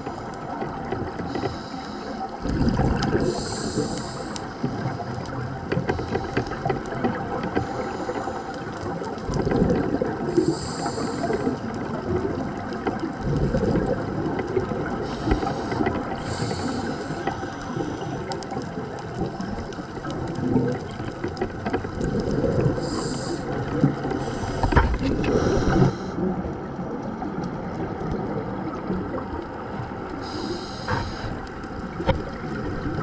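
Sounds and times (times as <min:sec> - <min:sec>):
muffled underwater noise: 0:00.0 - 0:33.0
scuba regulator inhale hiss: 0:01.3 - 0:02.3, 0:03.2 - 0:05.1, 0:10.3 - 0:11.6, 0:15.0 - 0:18.2, 0:22.7 - 0:26.2, 0:30.2 - 0:31.5
exhaled bubbles rushing: 0:02.4 - 0:05.8, 0:08.9 - 0:30.3, 0:30.9 - 0:33.0.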